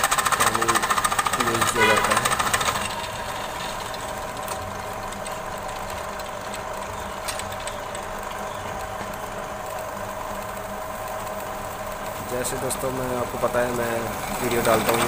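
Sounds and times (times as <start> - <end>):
pillar drill boring into pipe: 0.0 - 4.5, 12.2 - 15.0.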